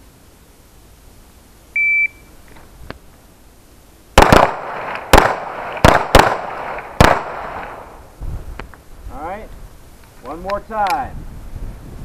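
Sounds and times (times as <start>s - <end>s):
shot timer beep: 1.8s - 2.3s
pistol shots with echo: 4.2s - 7.9s.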